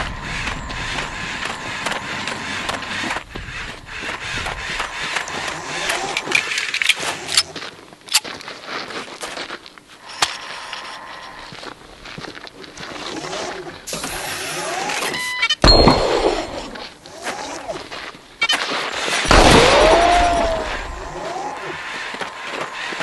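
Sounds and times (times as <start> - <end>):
robot clicking and whirring: 0.0 - 8.2
footsteps on dirt: 0.0 - 13.1, 21.5 - 23.0.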